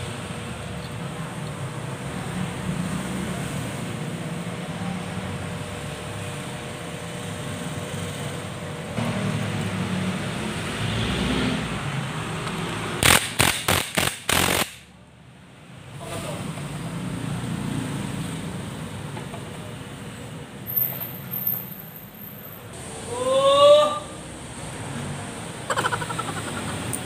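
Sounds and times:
workshop background noise: 0.0 - 23.4, 24.0 - 27.0
impact wrench bursts: 12.9 - 14.9.

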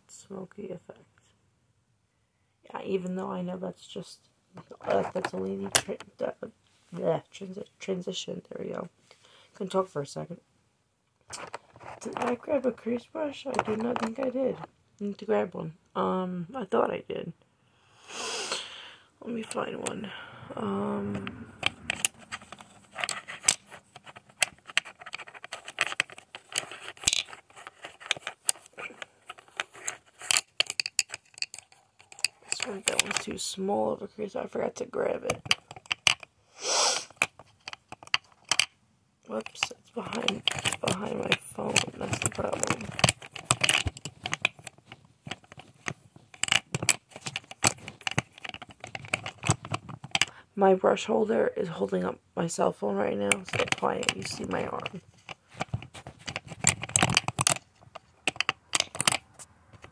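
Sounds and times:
brush handles clicking and rattling: 11.3 - 12.4, 13.4 - 14.7, 20.7 - 33.4, 35.3 - 36.3, 37.1 - 38.7, 39.3 - 50.3, 53.3 - 59.9.

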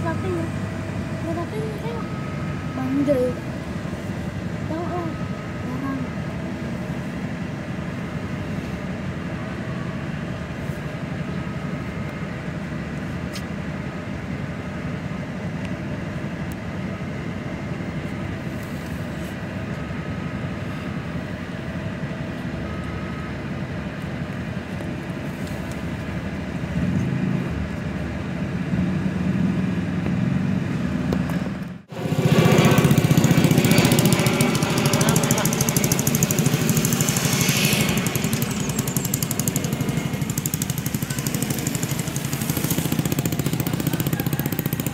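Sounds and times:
engines idling in traffic: 0.0 - 44.9
loud rushing noise: 31.8 - 44.9.

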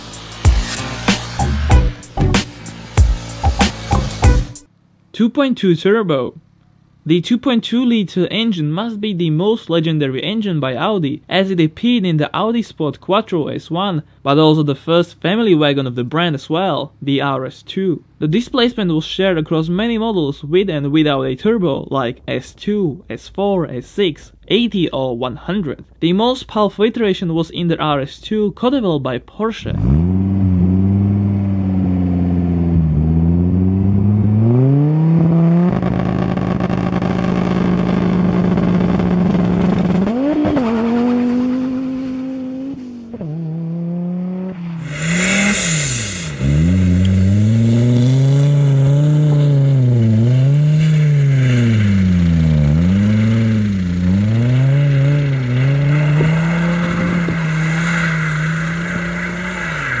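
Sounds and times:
engine revving hard: 0.0 - 4.6, 29.7 - 60.0.

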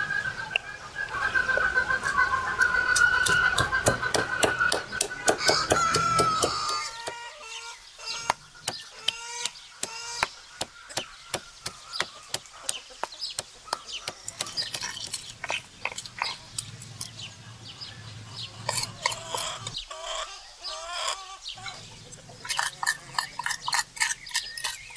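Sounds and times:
chicken calling: 0.0 - 24.8
chickens clucking: 0.0 - 24.9
stone pestle pounding in mortar: 3.0 - 7.2, 8.2 - 9.2.

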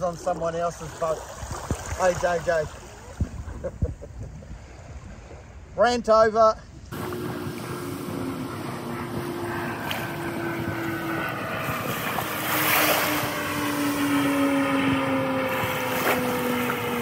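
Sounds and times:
wind gusts on microphone: 0.8 - 17.0
outboard motor running: 6.9 - 17.0.

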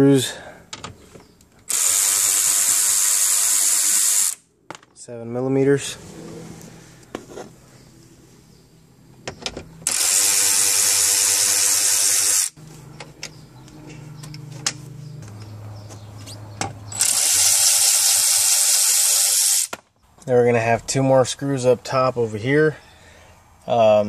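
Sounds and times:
cordless ratchet spinning: 1.7 - 4.4, 9.9 - 12.6, 16.9 - 19.7.

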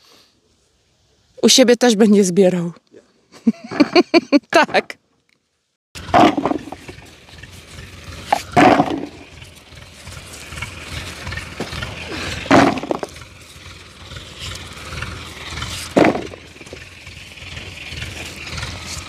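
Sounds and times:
potatoes knocking into bucket: 12.4 - 13.2, 15.9 - 16.4.

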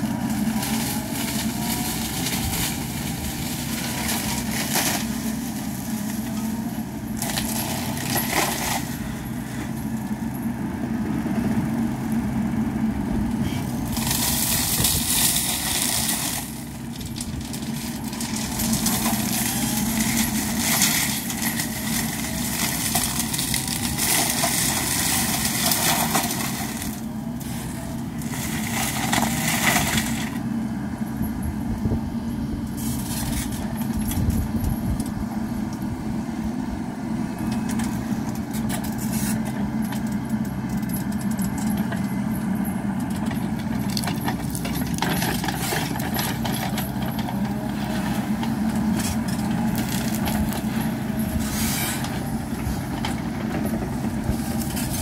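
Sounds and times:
diesel engine running: 0.0 - 55.0
mulcher shredding branches: 0.0 - 55.0.

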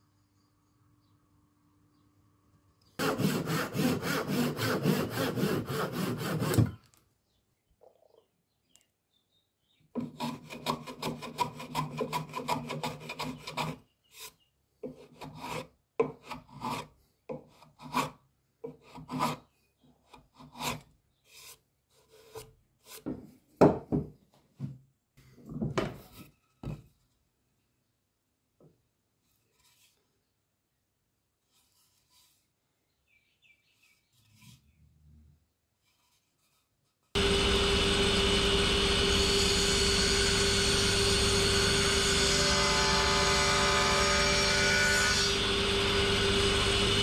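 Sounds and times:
tool rasping wood: 3.0 - 6.8, 10.0 - 16.9, 17.5 - 19.4, 37.2 - 47.0.

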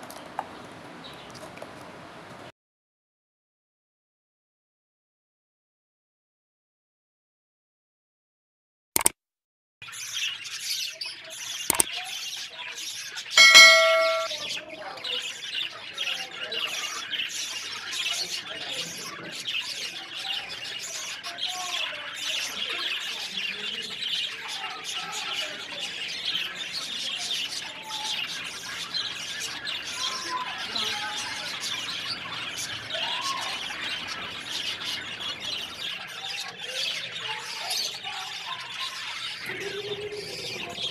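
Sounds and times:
small birds chirping: 0.1 - 1.5, 9.8 - 40.9
short ringing sound: 13.4 - 14.3.

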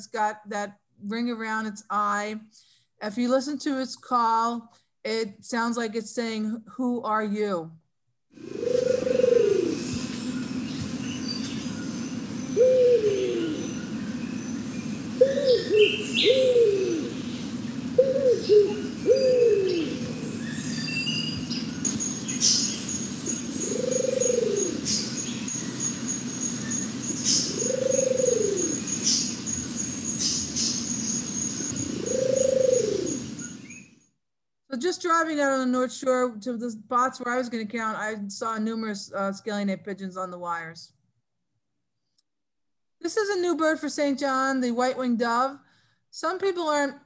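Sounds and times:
pigeon cooing: 8.4 - 10.5, 12.5 - 14.0, 15.1 - 21.3, 23.5 - 25.3, 27.3 - 29.0, 31.7 - 33.4.

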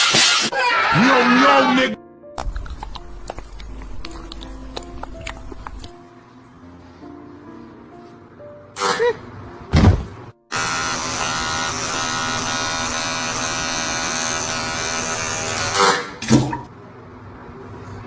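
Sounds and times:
electric shaver buzzing: 10.5 - 15.9.

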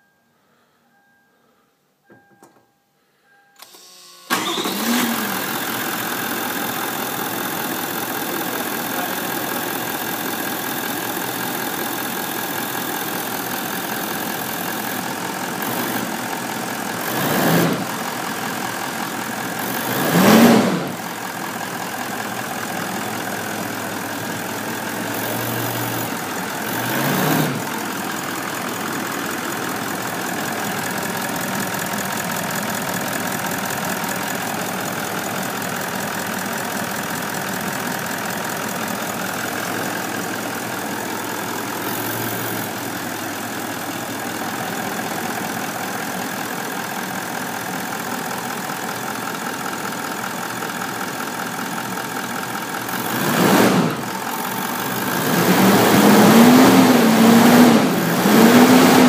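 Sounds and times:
engine cranking: 3.6 - 5.4
engine revving: 4.3 - 7.5, 15.6 - 16.1, 17.0 - 18.0, 19.6 - 21.2, 24.9 - 28.0, 52.9 - 59.0
diesel engine idling: 4.3 - 59.0.

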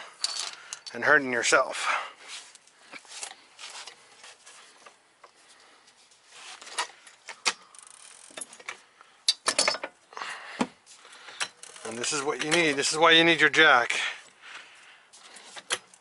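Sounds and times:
metallic clicks and clanks: 6.7 - 10.0, 11.2 - 13.0.

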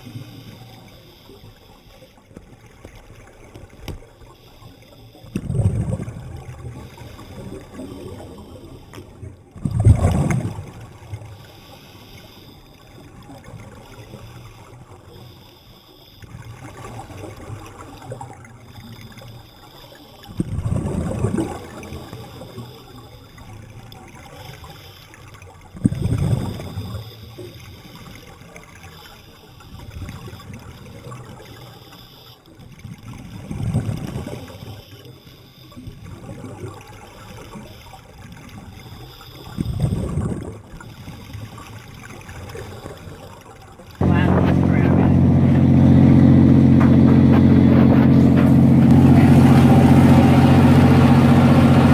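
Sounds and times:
low rumble of water: 0.0 - 51.9
gurgling exhaled bubbles: 5.3 - 11.3, 20.2 - 24.6, 25.4 - 28.7, 32.6 - 34.8, 35.7 - 51.9.

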